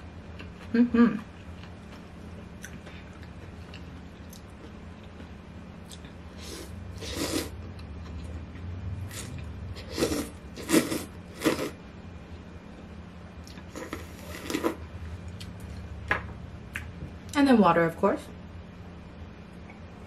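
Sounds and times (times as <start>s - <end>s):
person slurping noodles: 6.4s - 7.5s, 9.1s - 11.8s, 13.7s - 14.8s.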